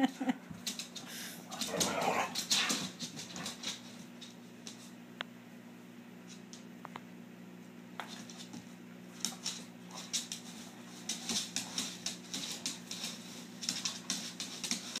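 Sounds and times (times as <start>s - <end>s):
dog claws clicking on wooden floor: 0.6s - 4.9s, 8.0s - 15.0s.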